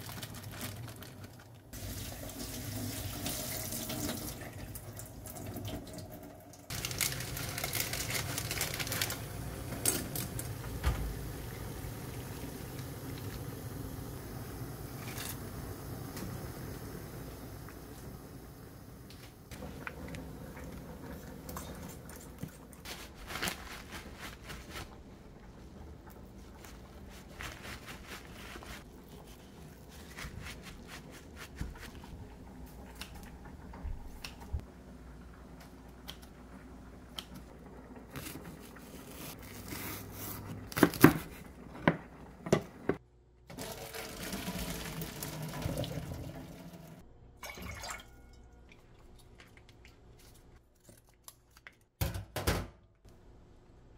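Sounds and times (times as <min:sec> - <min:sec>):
water poured into pot: 0:43.5 - 0:50.2.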